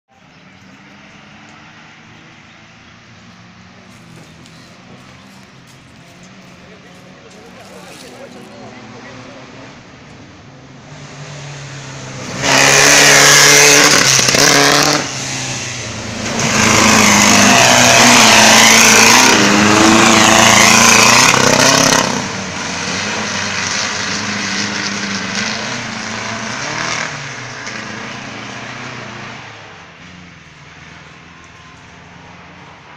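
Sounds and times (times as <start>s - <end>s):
racing car engine at full throttle: 0.2s - 32.9s.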